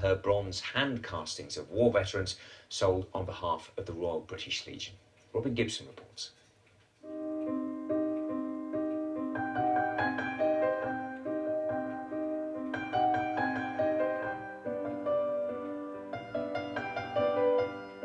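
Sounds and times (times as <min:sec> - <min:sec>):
piano chords: 0:07.0 - 0:18.0.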